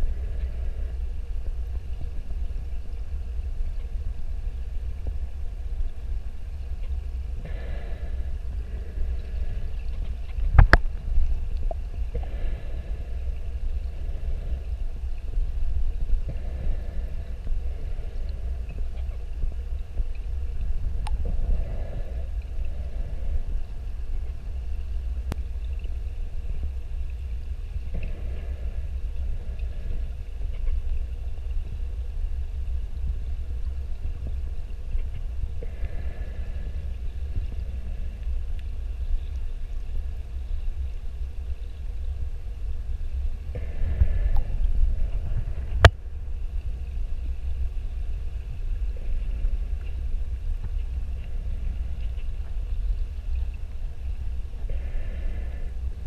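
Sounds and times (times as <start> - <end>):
low underwater rumble: 0.0 - 56.0
scuba exhaust bubbles: 7.2 - 33.2.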